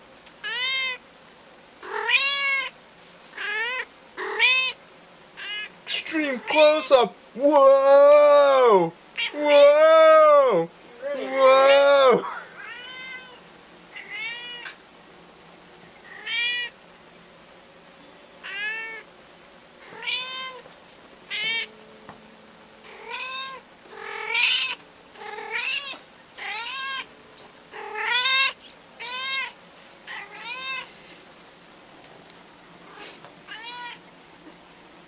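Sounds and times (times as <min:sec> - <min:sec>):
cat meowing: 0:00.4 - 0:01.0, 0:01.8 - 0:02.7, 0:03.4 - 0:04.8, 0:05.4 - 0:05.7, 0:09.2 - 0:14.8, 0:16.1 - 0:16.8, 0:18.4 - 0:19.1, 0:19.8 - 0:20.6, 0:21.3 - 0:21.7, 0:22.9 - 0:27.1, 0:27.8 - 0:30.9, 0:32.9 - 0:34.0.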